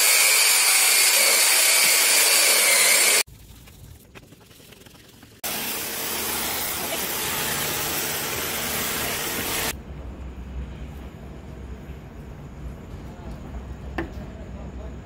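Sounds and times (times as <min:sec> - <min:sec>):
high-pressure water jet hissing: 0:00.0 - 0:03.3, 0:05.4 - 0:09.7.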